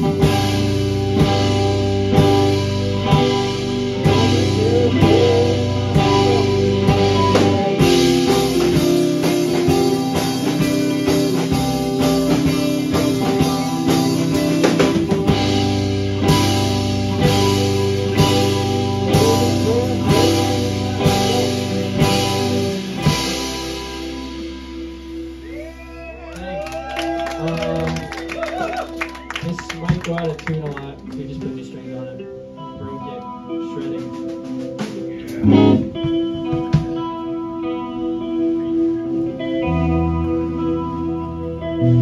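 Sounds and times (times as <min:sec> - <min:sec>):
live rock band playing: 0:00.0 - 0:42.0
ringing guitar: 0:00.0 - 0:42.0
drum hits: 0:35.3 - 0:37.0.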